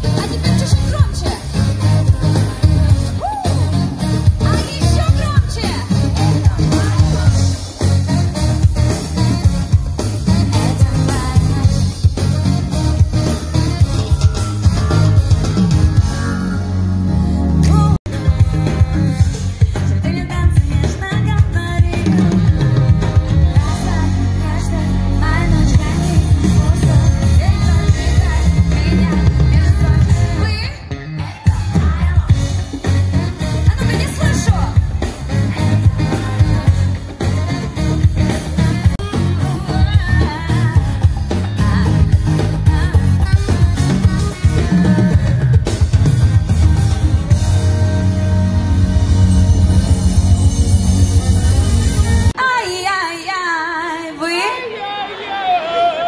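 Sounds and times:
woman singing: 0.0 - 14.2, 17.6 - 45.6, 52.3 - 54.6
heavy bass line: 0.0 - 30.8, 31.4 - 52.4
electric guitar: 0.0 - 52.6
drum kit: 0.0 - 52.9
live pop band playing: 0.0 - 56.0.

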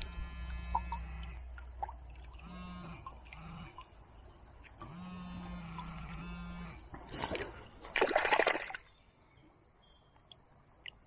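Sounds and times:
water splashing: 7.0 - 8.9.

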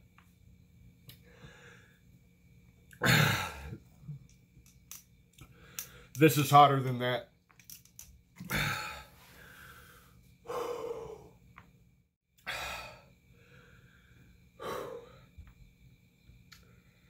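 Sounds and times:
man breathing heavily: 1.2 - 2.1, 5.4 - 6.2, 8.4 - 11.5, 12.4 - 15.5.

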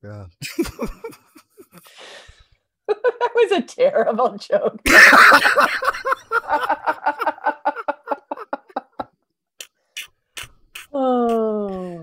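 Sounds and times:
person laughing: 0.4 - 1.8, 4.9 - 9.1.

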